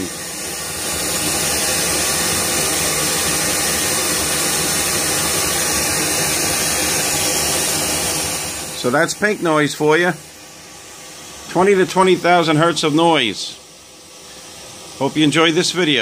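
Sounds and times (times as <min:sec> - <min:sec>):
pink noise hiss through loudspeakers: 0:08.8 - 0:10.2, 0:15.0 - 0:16.0.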